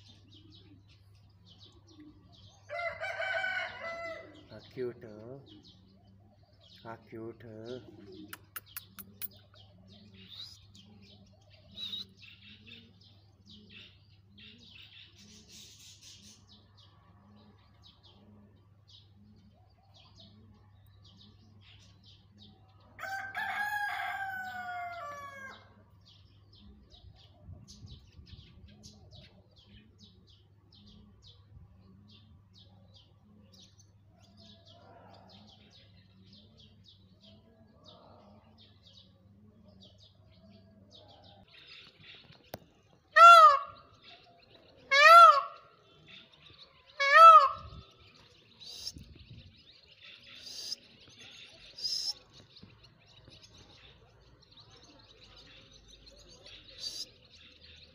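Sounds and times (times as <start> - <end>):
small birds chirping: 0.0 - 57.9
peacock call: 43.2 - 43.8, 44.9 - 45.6, 47.0 - 47.7.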